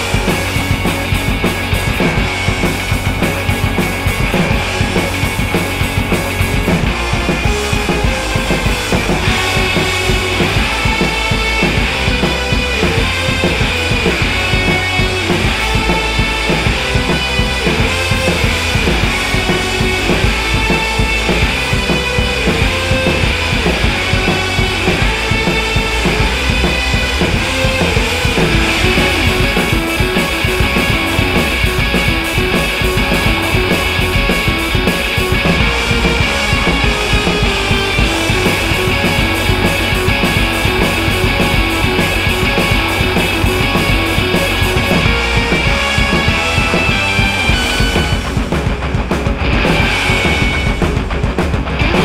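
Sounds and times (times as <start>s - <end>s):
rock music with drums and guitar: 0.0s - 52.0s.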